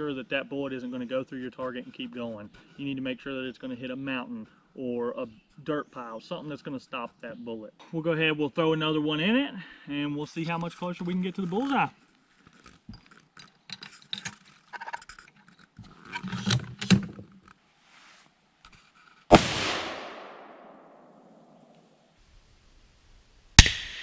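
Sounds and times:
sharp bang: 19.3 - 21.6
rifle shot with echo: 19.3 - 21.7, 23.6 - 24.0.

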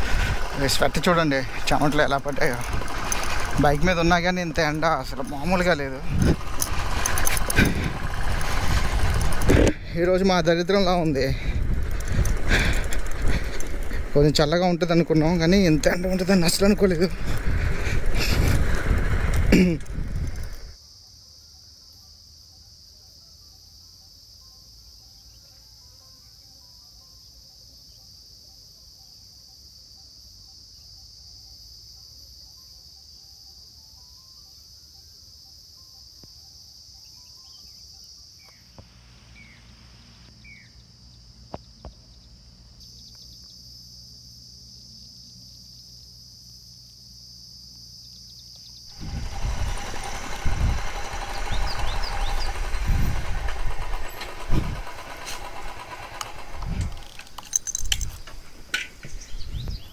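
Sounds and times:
high-pitched insect chorus: 0.0 - 59.9
faint bird chirps: 37.0 - 39.7, 40.4 - 43.7.

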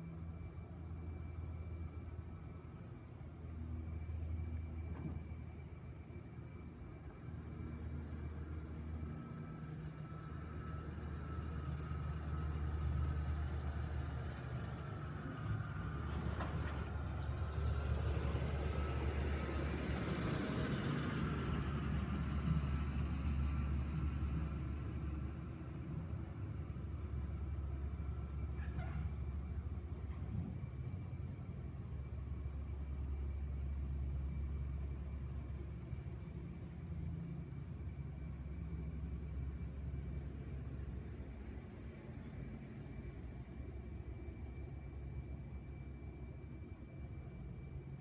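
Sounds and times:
car driving slowly past: 7.8 - 44.1.

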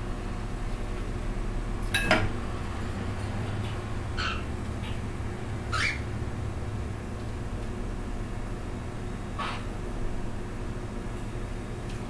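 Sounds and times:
low room hum: 0.0 - 12.0
baby birds scratchy calls: 4.2 - 5.0, 5.7 - 6.1, 9.4 - 9.7.

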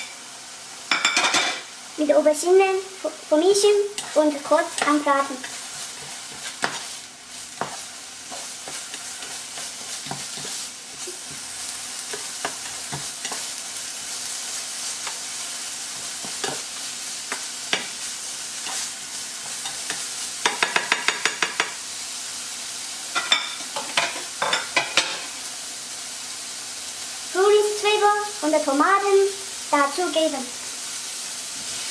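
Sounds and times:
vegetables sizzling in a pan: 0.0 - 31.9
spatula scraping and clicking: 4.0 - 6.9.

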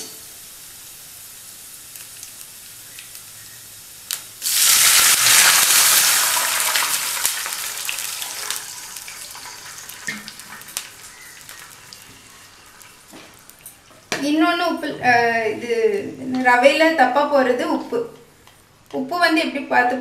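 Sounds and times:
water hissing in hot ghee: 0.0 - 13.9
spices sizzling in hot ghee: 0.0 - 14.4.

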